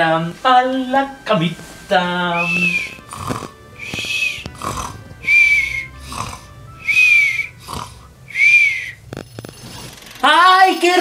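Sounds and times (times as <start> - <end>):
high whistle on breath out: 2.4 - 3.1, 3.8 - 4.5, 5.2 - 6.0, 6.8 - 7.7, 8.3 - 9.0
comic snoring: 2.4 - 10.2.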